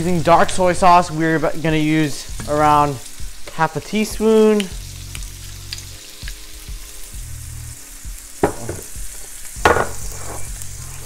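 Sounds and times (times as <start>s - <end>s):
shrimp sizzling in oil: 0.0s - 11.0s
glass knocks on counter: 8.4s - 8.9s, 9.6s - 10.0s.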